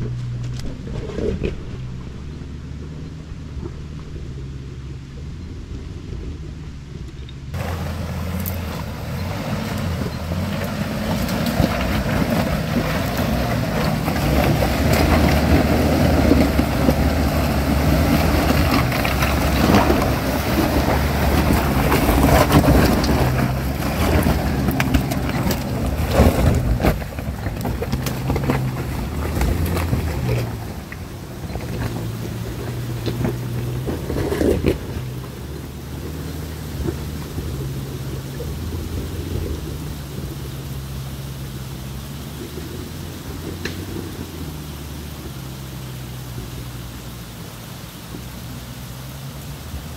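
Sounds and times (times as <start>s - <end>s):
car engine at low revs: 0.0s - 49.9s
tyres crunching on rocks: 7.5s - 40.8s.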